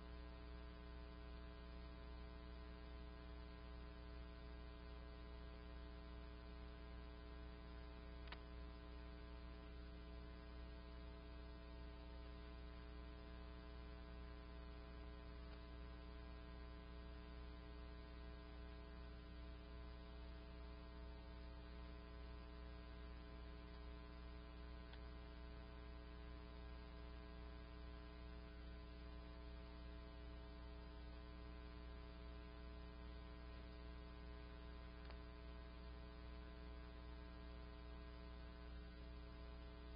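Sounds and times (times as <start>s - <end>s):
faint electrical hum: 0.0s - 39.9s.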